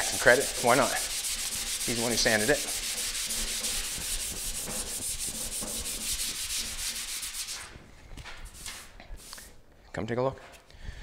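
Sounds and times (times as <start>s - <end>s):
hand sanding with sandpaper: 0.0s - 9.6s.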